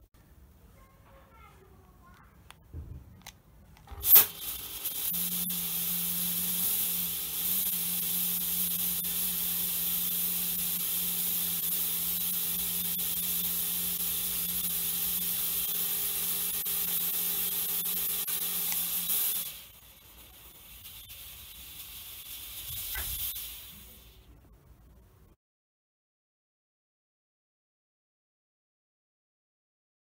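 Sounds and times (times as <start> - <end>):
low buzz: 3.8 - 25.0
fog machine hissing: 3.9 - 24.4
fog machine click: 22.8 - 23.4.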